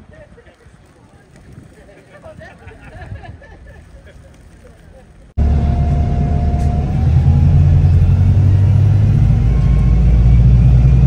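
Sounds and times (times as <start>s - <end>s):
vehicle engine and tyres rumbling: 0.0s - 11.0s
faint whine: 5.4s - 11.0s.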